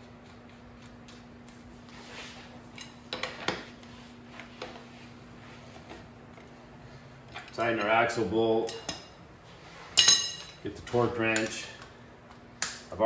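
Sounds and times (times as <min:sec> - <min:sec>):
faint steady hum: 0:00.0 - 0:13.0
wrench and metal hardware clinking: 0:10.0 - 0:10.7.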